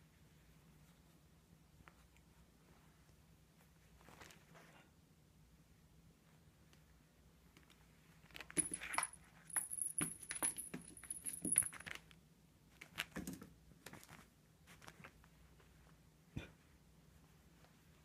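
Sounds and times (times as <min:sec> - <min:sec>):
jingling toy: 0:08.6 - 0:11.7
toy tapping on tile floor: 0:08.6 - 0:11.7.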